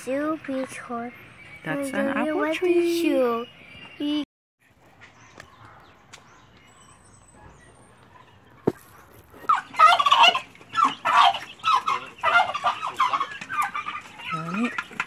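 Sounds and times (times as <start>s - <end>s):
turkeys gobbling: 7.9s - 15.0s.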